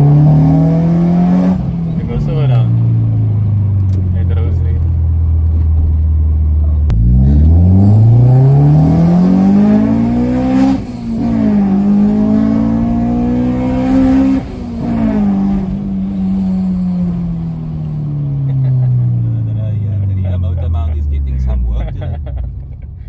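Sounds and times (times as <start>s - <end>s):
car engine accelerating: 0.0s - 23.0s.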